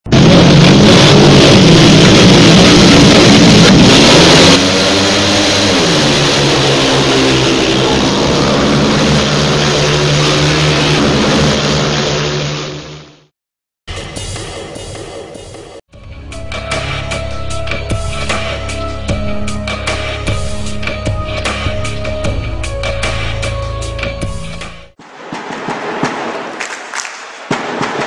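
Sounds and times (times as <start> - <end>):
motorcycle engines revving: 0.5 - 12.9.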